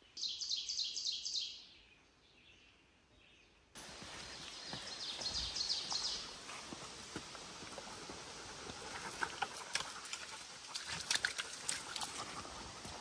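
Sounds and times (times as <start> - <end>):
footsteps on trail and boardwalk: 3.8 - 13.0.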